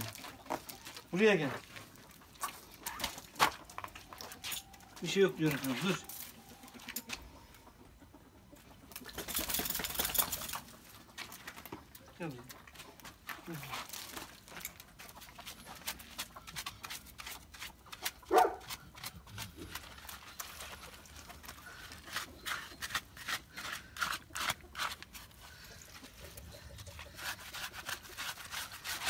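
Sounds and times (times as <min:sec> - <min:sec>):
rubbing and scrubbing wet coat: 0:12.6 - 0:29.0.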